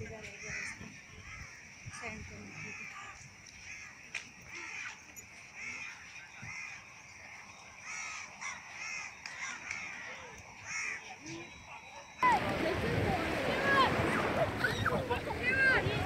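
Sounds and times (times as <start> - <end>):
crows cawing: 0.4 - 1.6, 2.5 - 6.9, 7.8 - 11.1.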